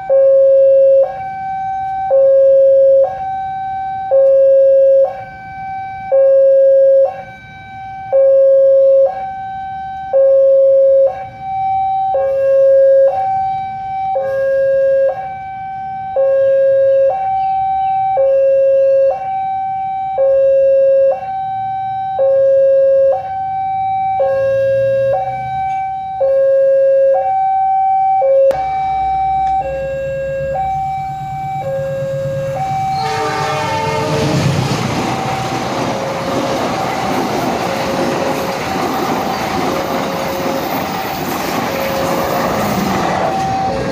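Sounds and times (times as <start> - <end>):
two-tone crossing alarm: 0.0 - 43.9
train rumble: 28.6 - 43.9.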